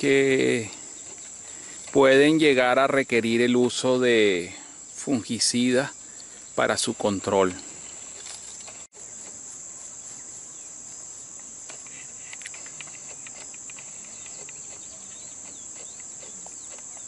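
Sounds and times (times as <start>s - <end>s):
insect chorus: 0.0s - 17.0s.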